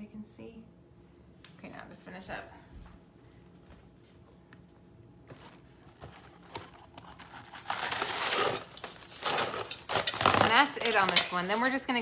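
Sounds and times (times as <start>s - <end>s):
plastic wrap crinkling: 5.3s - 12.0s.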